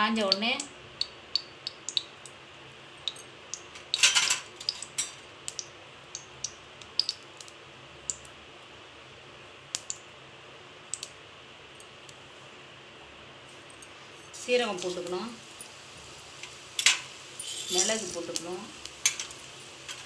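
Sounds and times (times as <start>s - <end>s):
hot oil crackling and popping: 0.0s - 12.4s, 13.7s - 20.0s
faint steady hiss: 0.0s - 20.0s.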